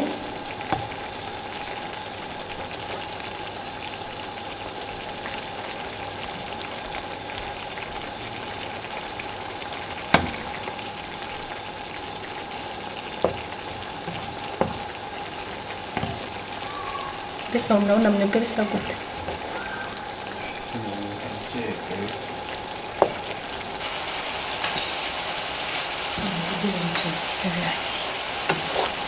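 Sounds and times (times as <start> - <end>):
meatballs sizzling in a frying pan: 0.0 - 29.0
wooden spatula knocking pan: 10.1 - 10.6, 13.2 - 15.0, 15.9 - 16.4, 23.0 - 23.3.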